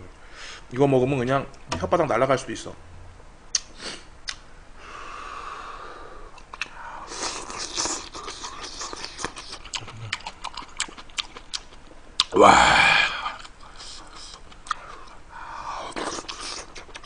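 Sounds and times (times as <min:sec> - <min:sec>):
wet mouth clicks: 0:03.5 - 0:04.4, 0:06.3 - 0:12.4
person slurping and chewing: 0:06.4 - 0:15.1, 0:15.7 - 0:17.0.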